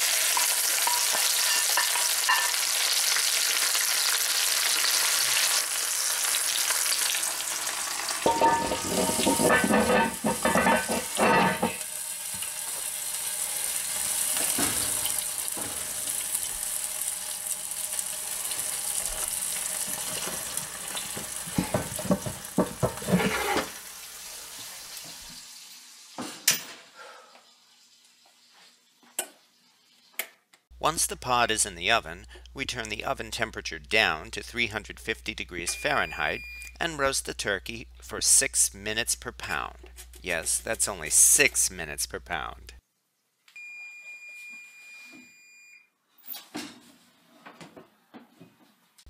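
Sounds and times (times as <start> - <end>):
hot fat sizzling: 0.0 - 26.3
cast iron lid and pot clanking: 0.3 - 2.6, 8.2 - 11.9, 21.1 - 23.8.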